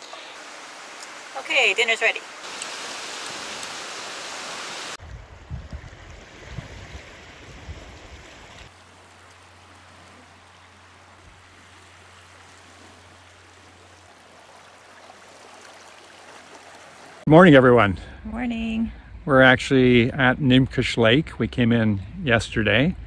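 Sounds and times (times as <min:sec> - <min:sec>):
small waves on a lakeshore: 0:00.0 - 0:17.3
wind buffeting microphone: 0:05.0 - 0:08.7.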